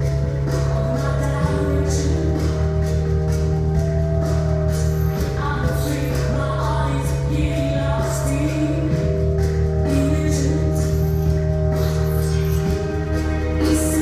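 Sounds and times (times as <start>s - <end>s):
music with steady beat: 0.0s - 14.0s.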